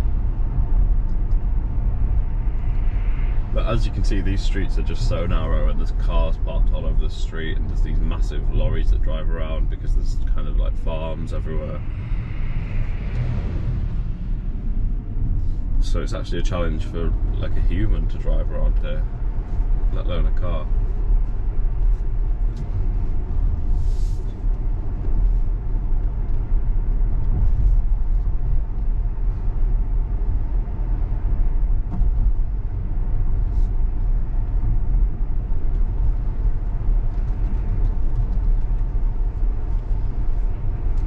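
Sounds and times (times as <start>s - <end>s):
road rumble and tyre noise: 0.0s - 41.0s.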